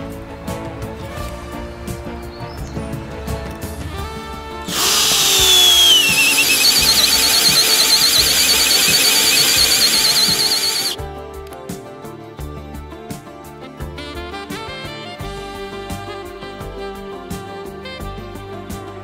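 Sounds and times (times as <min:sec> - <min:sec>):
cordless drill boring into wood: 0:04.7 - 0:11.0.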